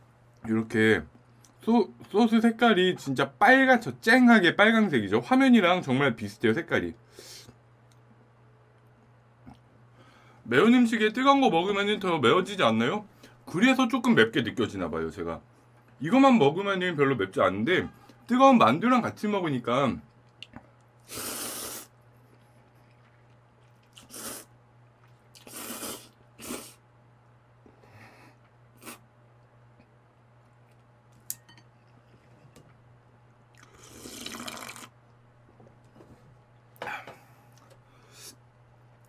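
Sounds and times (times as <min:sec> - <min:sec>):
person slurping noodles: 0:21.1 - 0:21.9, 0:24.0 - 0:24.5, 0:25.4 - 0:26.8, 0:33.6 - 0:34.9.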